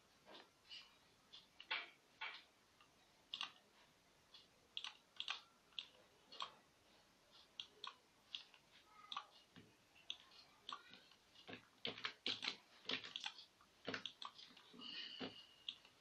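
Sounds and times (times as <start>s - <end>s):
computer mouse buttons clicking: 4.8s - 6.6s, 10.1s - 14.7s.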